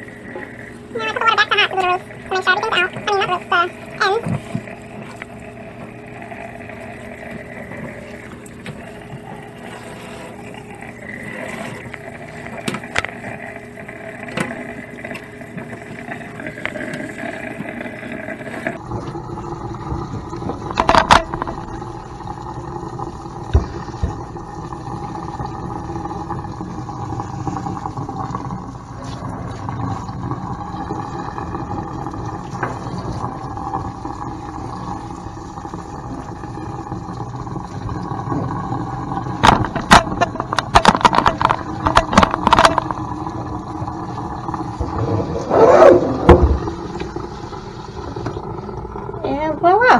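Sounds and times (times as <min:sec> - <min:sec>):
water spraying into steel sink: 0:00.0 - 0:49.9.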